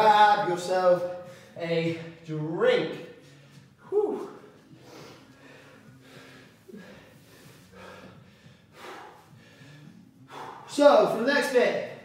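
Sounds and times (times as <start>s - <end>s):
man breathing hard: 1.2s - 1.6s, 4.6s - 10.9s.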